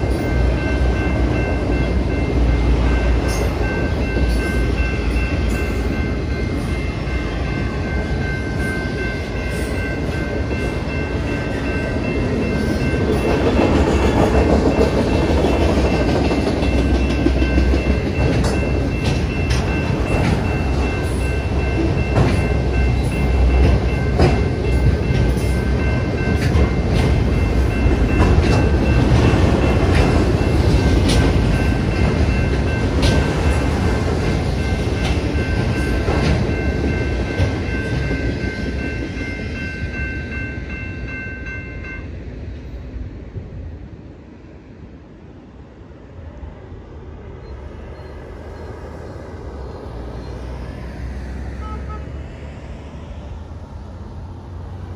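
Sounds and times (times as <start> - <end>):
crossing warning bell ringing: 0.0 - 42.5
freight train rumbling past: 0.0 - 54.9
wheels clicking over rail joints: 13.0 - 38.4.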